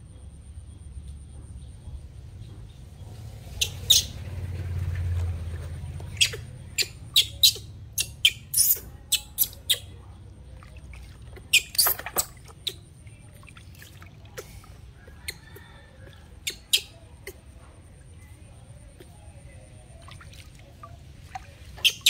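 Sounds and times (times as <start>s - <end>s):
baby monkey squeaking: 3.6s - 4.2s, 6.1s - 9.9s, 11.4s - 13.0s, 16.4s - 17.4s, 21.8s - 22.0s
water splashing in basin: 8.8s - 17.5s, 19.0s - 22.0s.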